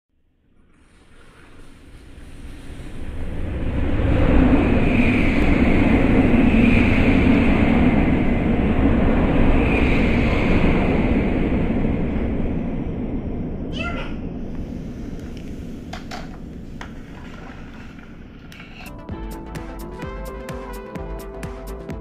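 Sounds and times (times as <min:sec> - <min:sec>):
toy jet engine roar: 0:01.1 - 0:11.8.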